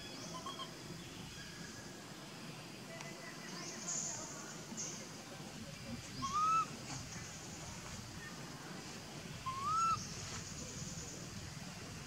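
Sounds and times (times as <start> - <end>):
baby monkey crying: 6.2 - 6.6, 9.5 - 10.0.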